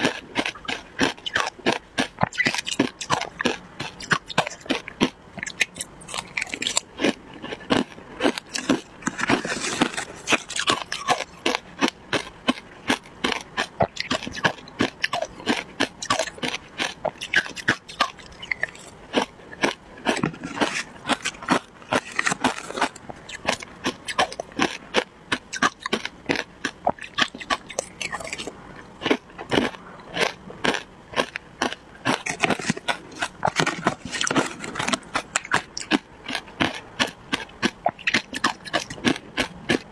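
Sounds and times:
crunching and chewing ice: 0.0 - 39.9
metal spoon scraping plastic tub: 9.0 - 10.6.

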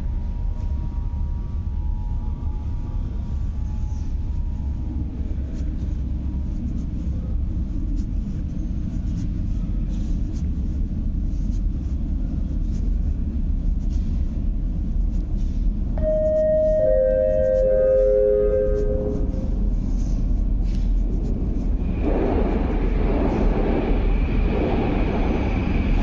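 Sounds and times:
metro train rumble: 0.0 - 26.0
descending chime tones: 16.0 - 19.6.

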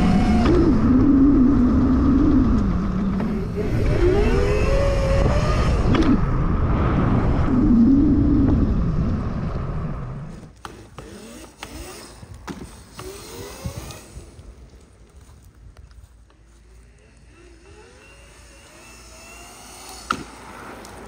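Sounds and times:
wind noise on microphone: 0.0 - 10.5, 13.0 - 14.8
electric motor whine: 0.0 - 14.7, 16.4 - 21.0.

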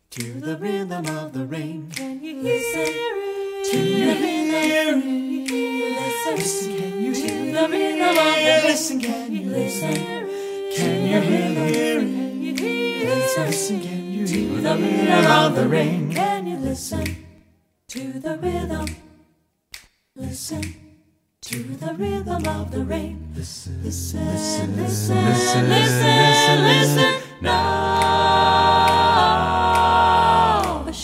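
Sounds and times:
a cappella group singing harmony: 0.0 - 19.3, 20.2 - 31.0
short clipped vocal sounds: 3.7 - 4.9, 21.4 - 28.2.

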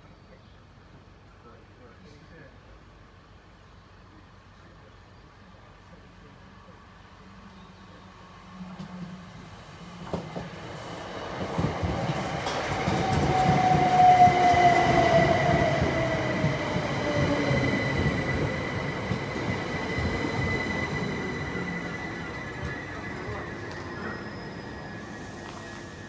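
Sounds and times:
train rolling noise: 8.4 - 26.0
high-pitched squeal: 12.9 - 26.0.

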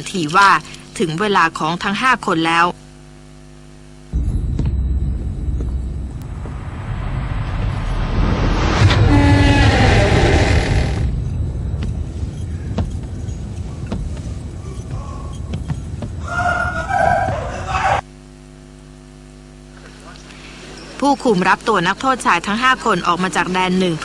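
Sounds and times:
voices: 0.0 - 2.8, 19.8 - 24.0
low steady hum: 0.0 - 24.0
rumbling din: 4.1 - 18.0.

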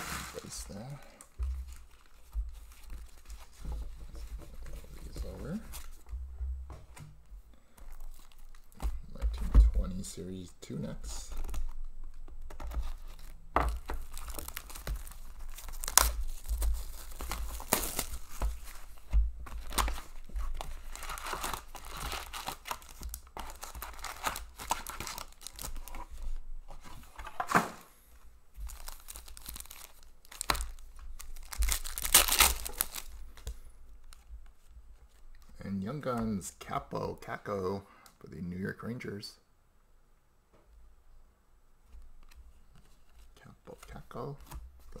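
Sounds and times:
plastic wrapping tearing and crinkling: 7.9 - 8.8, 11.2 - 26.4, 28.7 - 34.2.

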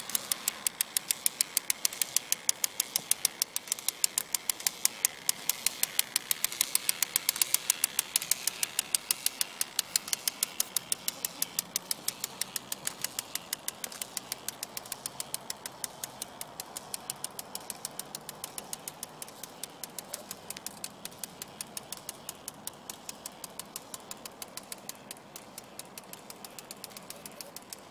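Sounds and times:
plastic gear drive clicking: 0.0 - 27.9.

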